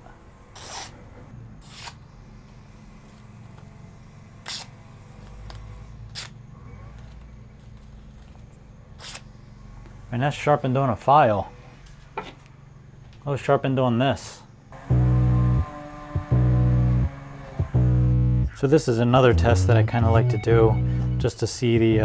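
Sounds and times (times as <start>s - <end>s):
knife slicing through newspaper: 0.6s - 1.0s, 1.6s - 2.0s
steady low hum: 14.5s - 22.0s.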